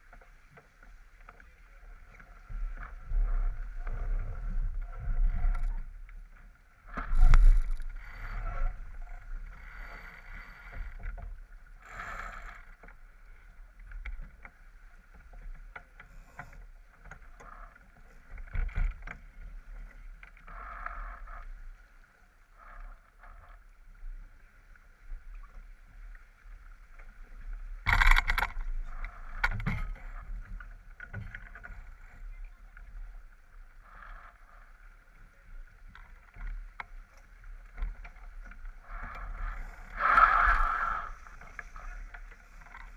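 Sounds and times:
water rushing along boat hull: 24.6s - 42.9s.

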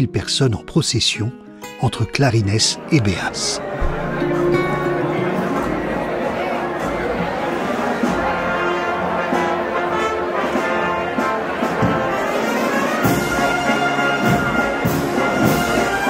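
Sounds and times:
trumpet and trombone notes: 2.8s - 16.0s
drum hits: 3.8s - 4.5s.

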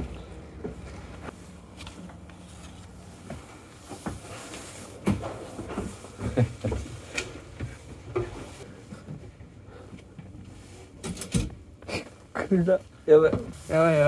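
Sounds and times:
rustling: 0.0s - 9.1s
steady low hum: 0.0s - 13.0s.

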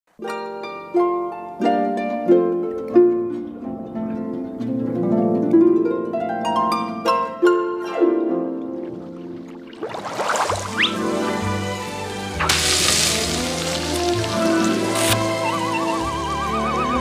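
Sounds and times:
plucked string melody: 0.2s - 17.0s.

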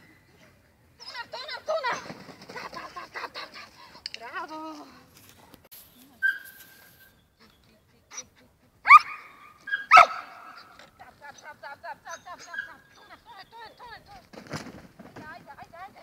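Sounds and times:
dog barking: 8.8s - 10.7s.

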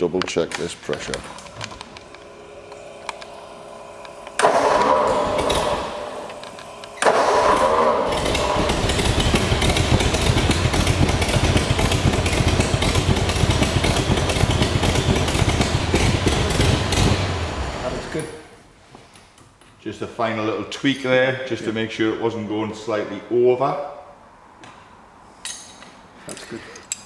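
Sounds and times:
car engine idling: 2.2s - 18.2s
engine starter cranking: 4.0s - 18.3s.

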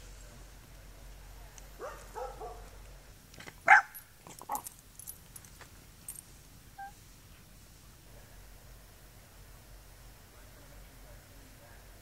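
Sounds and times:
dog barking: 1.8s - 2.7s, 3.7s - 4.0s.

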